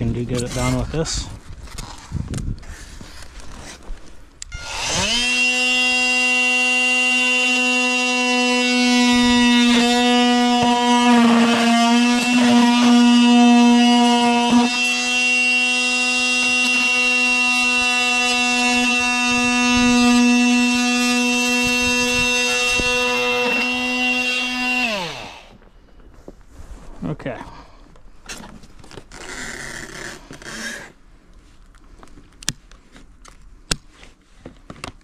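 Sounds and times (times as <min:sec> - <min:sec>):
oscillating multi-tool buzzing: 0:04.4 - 0:25.5.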